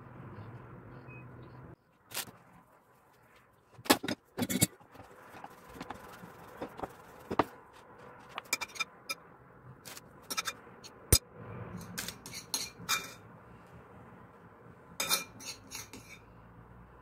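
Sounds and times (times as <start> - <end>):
rolling pin rolling dough: 3.2 - 8.8
knocks and clicks of utensils: 3.8 - 5.1, 8.3 - 9.0, 9.9 - 10.6, 15.0 - 16.2.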